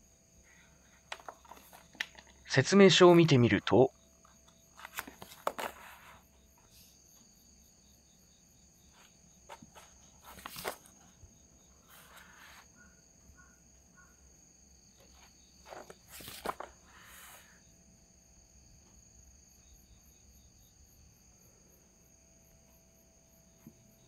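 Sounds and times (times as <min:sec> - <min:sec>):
insects chirring: 0:00.0 - 0:24.0
paper pages rustling: 0:01.0 - 0:02.4, 0:04.2 - 0:06.2, 0:09.0 - 0:11.2, 0:15.0 - 0:17.5.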